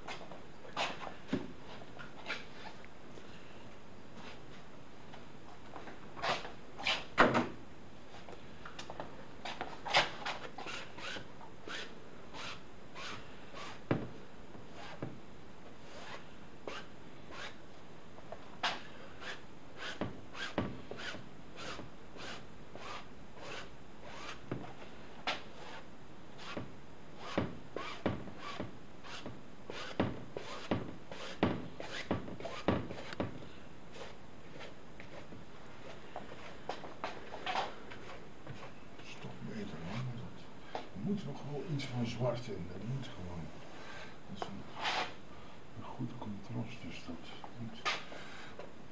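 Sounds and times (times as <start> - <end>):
paintbrush scraping on canvas: 18.6 - 24.4, 25.3 - 33.2, 33.9 - 36.5.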